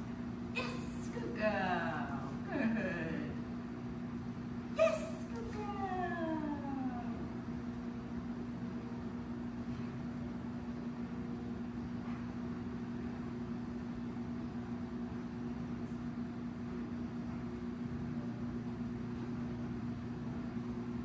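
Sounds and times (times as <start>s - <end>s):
low machinery drone: 0.0s - 8.0s.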